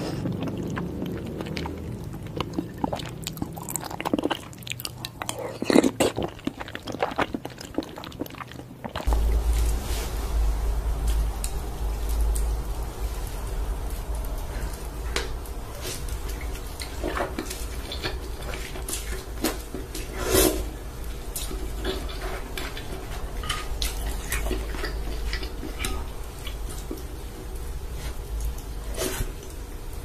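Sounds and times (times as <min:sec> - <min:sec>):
steady low hum: 0:00.0 - 0:06.6, 0:08.9 - 0:30.0
slurping noodles: 0:00.0 - 0:09.2, 0:15.8 - 0:20.8
chewing: 0:00.0 - 0:09.7, 0:13.4 - 0:30.0.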